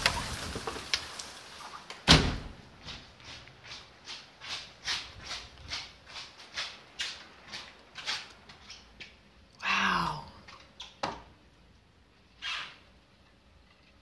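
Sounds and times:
hail: 0.0 - 1.7
door shutting thud: 2.0 - 2.6.

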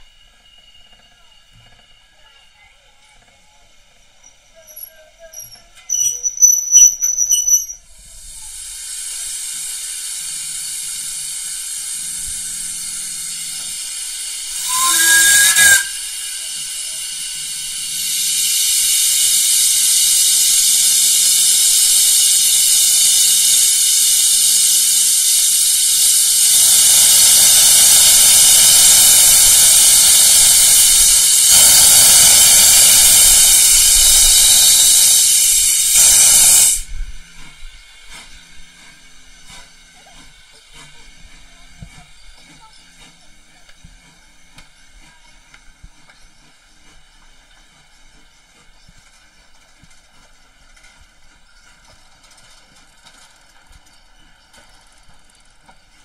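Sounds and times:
low rumble of train moving: 0.0 - 56.0
steam locomotive hissing: 0.0 - 56.0
train whistle: 14.5 - 17.0, 26.0 - 36.9.

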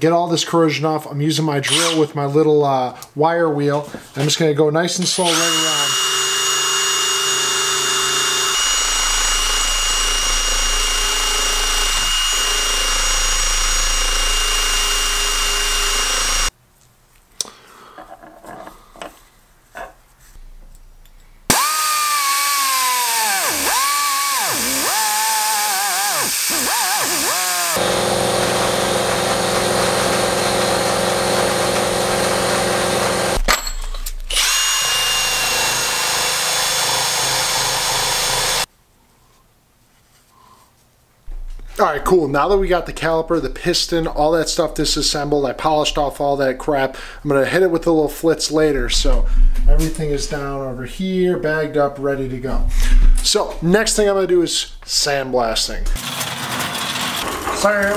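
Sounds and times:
cordless drill with wire wheel: 1.7 - 2.1, 5.0 - 16.5, 21.5 - 33.4, 34.3 - 38.7, 56.0 - 57.9.

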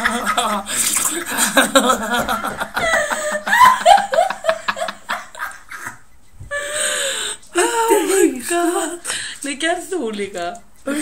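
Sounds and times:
woman laughing hard: 0.0 - 6.8.

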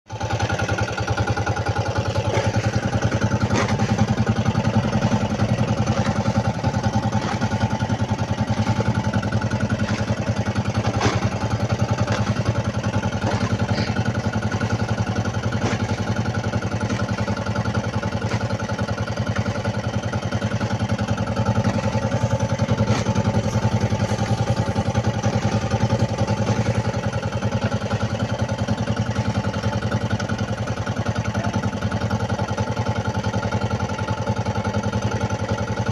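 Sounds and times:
boat engine idling: 0.1 - 35.9.

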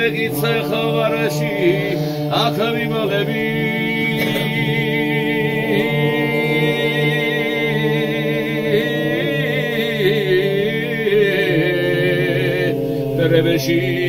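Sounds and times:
men singing in parts unaccompanied: 0.0 - 14.0.

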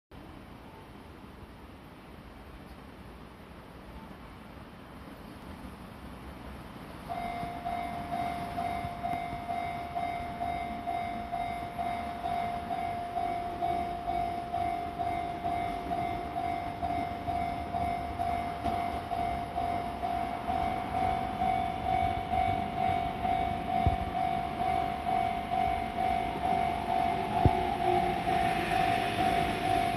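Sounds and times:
train approach warning beeping: 0.2 - 1.5, 3.4 - 5.7, 6.4 - 29.9
electric train running: 6.2 - 29.9.

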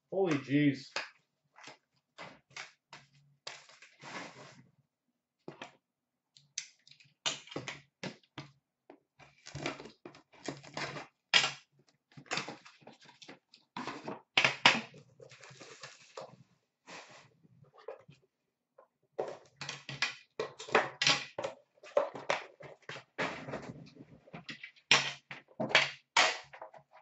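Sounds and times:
cardboard and plastic rustling: 9.2 - 11.3, 12.0 - 14.3, 14.9 - 18.1, 21.4 - 24.8.

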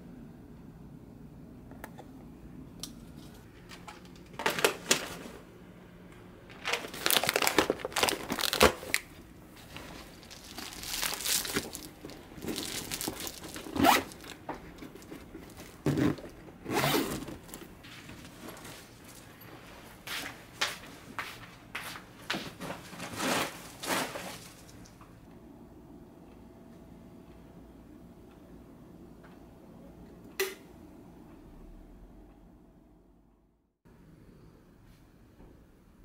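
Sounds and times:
plastic bags crinkling: 3.7 - 5.4, 6.5 - 19.3, 22.8 - 24.9.

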